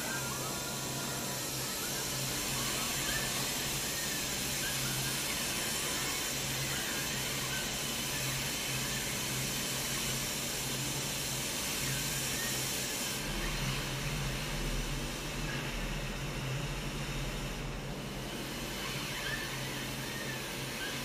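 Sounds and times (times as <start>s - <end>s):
paint spray hissing: 0.0s - 13.4s.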